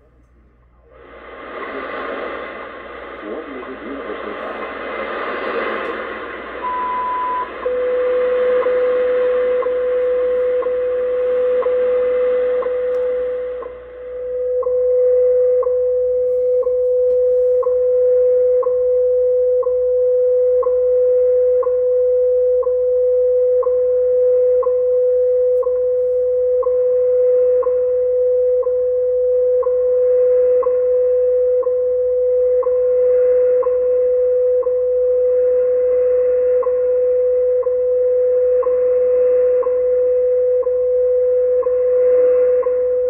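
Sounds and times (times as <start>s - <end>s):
radio band hiss: 0.9s - 11.9s
steady radio tone: 0.9s - 19.0s, 29.7s - 43.0s.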